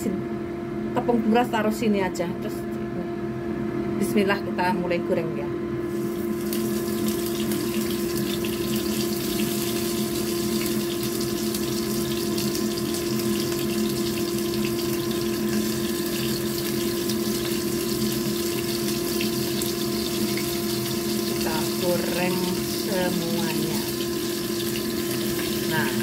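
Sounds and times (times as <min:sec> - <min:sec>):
steady low hum: 0:00.0 - 0:26.0
fish sizzling in hot oil: 0:05.9 - 0:26.0.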